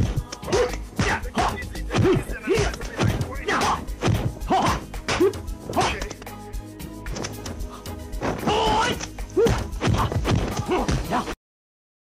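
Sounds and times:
video game music: 0.0 - 11.2
short yells: 8.4 - 10.1.

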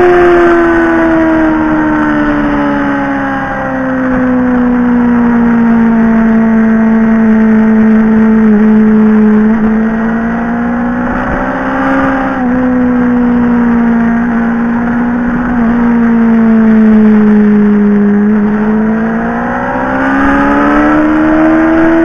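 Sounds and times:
motorcycle engine running: 0.0 - 22.0
wind and road noise: 0.0 - 22.0.

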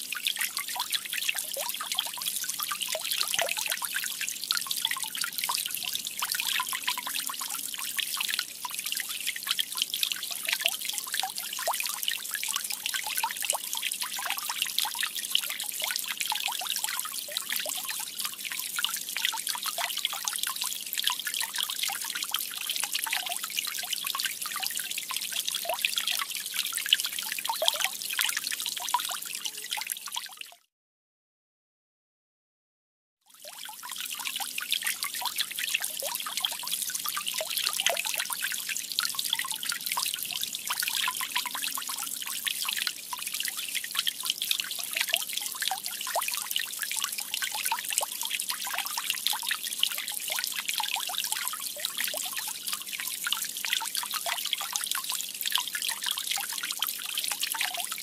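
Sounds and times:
water fountain trickling: 0.2 - 30.2, 33.4 - 58.0.

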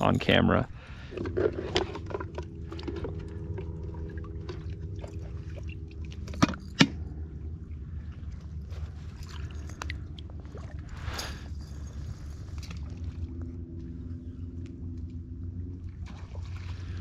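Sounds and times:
water sloshing in bucket: 0.9 - 7.1, 8.0 - 13.6, 15.7 - 17.0.

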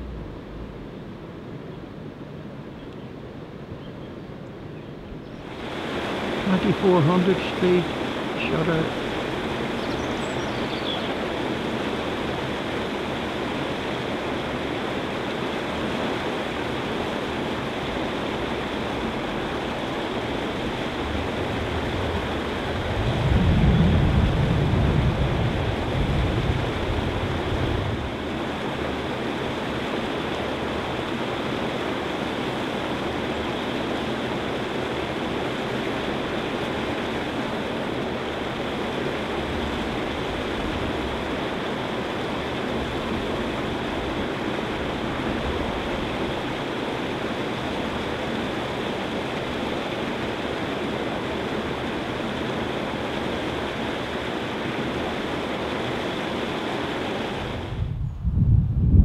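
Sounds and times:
low rumble: 0.0 - 1.6, 20.6 - 28.0, 57.7 - 59.0
water rushing over weir: 5.4 - 57.9.

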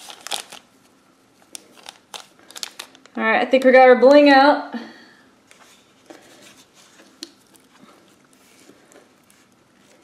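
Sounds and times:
slime squishing: 6.5 - 10.0.

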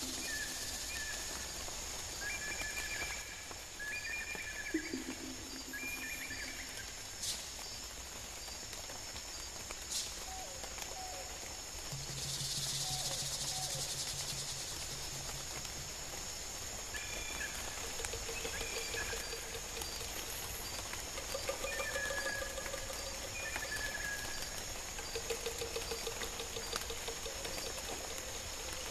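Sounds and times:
insects trilling: 0.0 - 3.7, 4.6 - 28.9
bird chirps: 17.0 - 28.9.

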